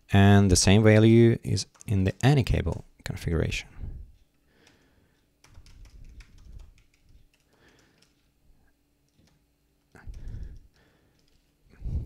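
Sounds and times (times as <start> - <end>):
keyboard keys clicking: 5.4 - 8.3, 9.1 - 11.5.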